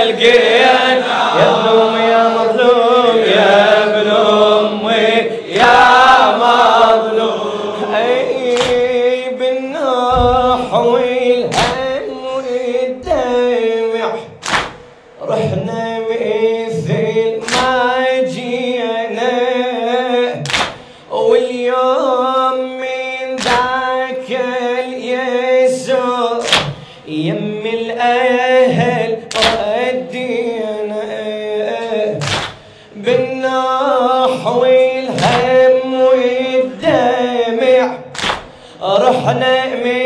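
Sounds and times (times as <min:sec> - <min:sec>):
person chanting a lament: 0:00.0 - 0:14.5, 0:15.2 - 0:40.0
sharp rhythmic thuds: 0:08.4 - 0:09.1, 0:10.0 - 0:12.2, 0:14.3 - 0:15.6, 0:16.8 - 0:17.9, 0:20.4 - 0:21.0, 0:23.4 - 0:23.8, 0:26.4 - 0:27.0, 0:28.7 - 0:29.8, 0:32.1 - 0:33.4, 0:35.1 - 0:35.7, 0:38.2 - 0:39.4.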